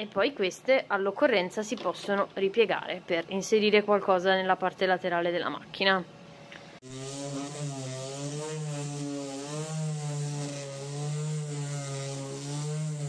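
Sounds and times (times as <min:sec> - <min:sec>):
electric sander on wood: 0:06.8 - 0:13.0.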